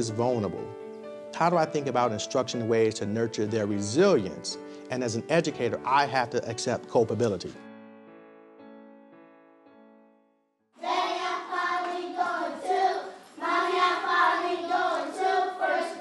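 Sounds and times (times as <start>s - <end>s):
background music: 0.0s - 16.0s
children and teacher singing: 10.8s - 16.0s.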